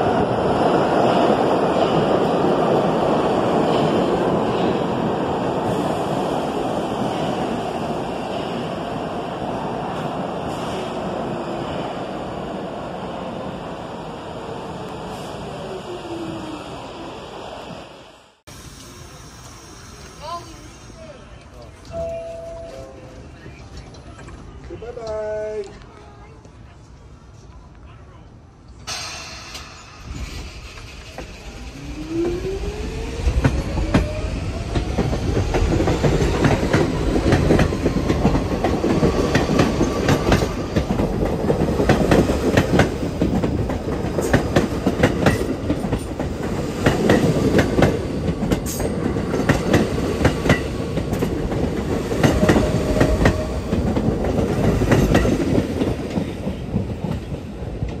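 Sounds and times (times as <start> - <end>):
subway train motors whining: 0.0 - 24.8, 25.8 - 58.0
wheels clacking over rail joints: 33.3 - 58.0.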